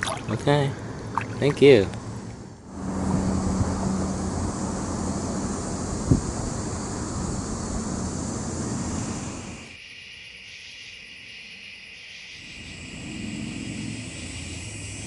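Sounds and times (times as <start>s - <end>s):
low rumble of wind: 0.0s - 9.8s, 12.6s - 15.0s
steady high hiss: 0.4s - 15.0s
wind rushing on microphone: 2.7s - 9.7s.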